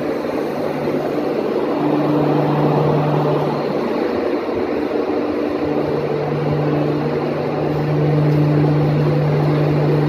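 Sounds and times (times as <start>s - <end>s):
train diesel engine running: 0.0s - 10.0s.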